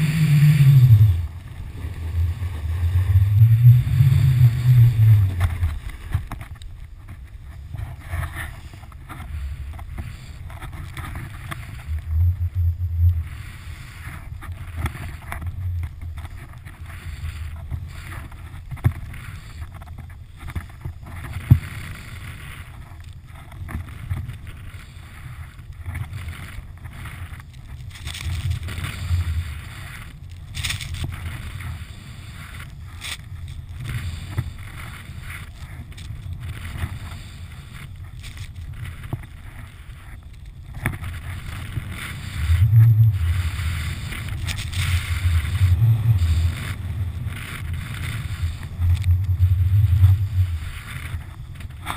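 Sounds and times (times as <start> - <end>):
snowboard hissing through snow: 0.0 - 6.1, 8.6 - 10.4, 13.2 - 15.1, 16.8 - 18.4, 28.2 - 35.6, 36.6 - 38.0, 41.1 - 51.5
low gusting rumble: 0.0 - 8.2, 9.3 - 14.8, 31.1 - 51.9
wind buffeting microphone: 0.0 - 8.2, 40.6 - 51.9.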